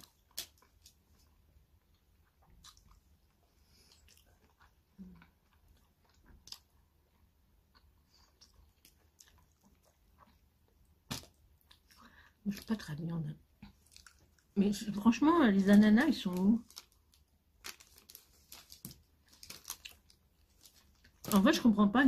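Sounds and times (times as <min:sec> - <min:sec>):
chewing food: 0:00.0 - 0:12.1, 0:13.6 - 0:14.6.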